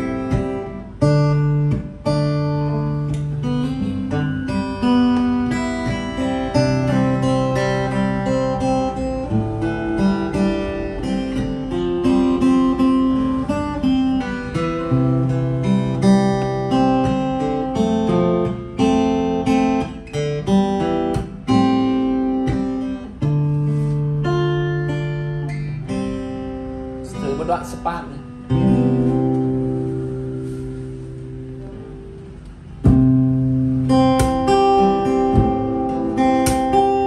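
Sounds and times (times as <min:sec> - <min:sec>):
fingerstyle acoustic guitar: 0:00.0 - 0:37.0.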